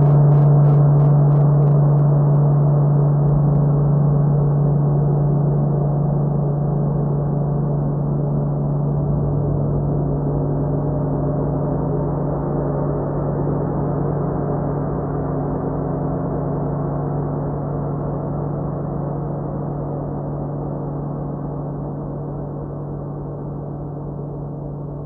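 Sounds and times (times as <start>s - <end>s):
low pulsing: 0.0s - 5.2s
gong-like drone: 0.0s - 25.0s.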